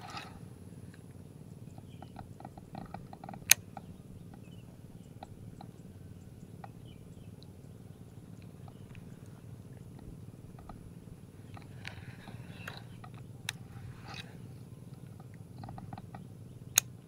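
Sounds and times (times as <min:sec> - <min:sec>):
low steady rumble: 0:00.0 - 0:17.0
sharp click: 0:15.0 - 0:17.0.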